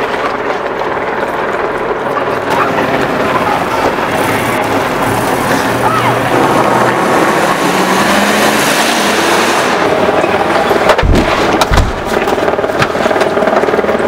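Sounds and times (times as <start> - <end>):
heavy thumps: 10.8 - 13.0.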